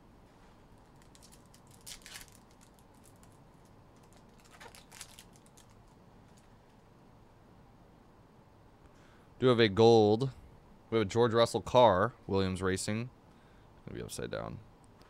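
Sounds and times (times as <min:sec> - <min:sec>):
foil wrapper crinkling and tearing: 0:00.8 - 0:06.5.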